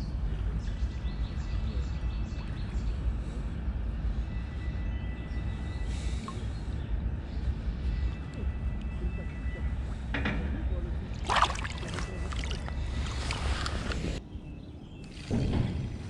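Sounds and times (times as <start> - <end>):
water splashing: 11.1 - 14.2.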